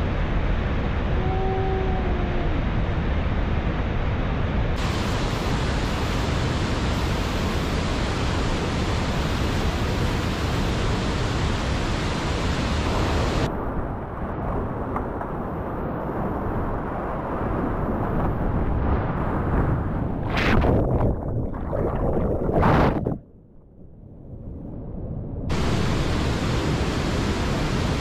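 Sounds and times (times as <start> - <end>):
waterfall and rapids rushing: 2.6 - 13.5, 25.5 - 28.0.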